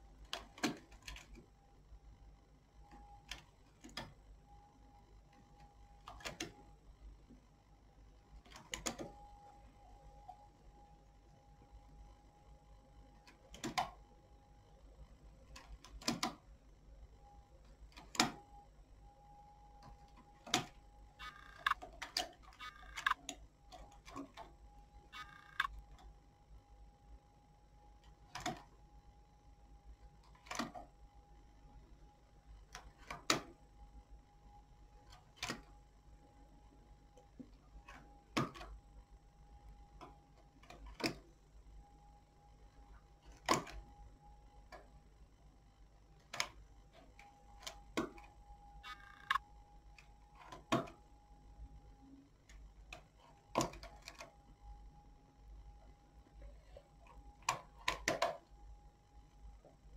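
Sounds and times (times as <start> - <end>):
faint high hum: 0.0 - 59.9
faint steady tone: 0.0 - 59.9
knitting machine metal clicks: 0.1 - 1.4, 5.4 - 6.6, 13.2 - 14.0, 15.5 - 16.4, 17.9 - 18.4, 19.8 - 24.6, 28.0 - 28.7, 30.2 - 30.9, 35.1 - 35.7, 40.0 - 41.3, 43.2 - 43.9, 52.9 - 54.3.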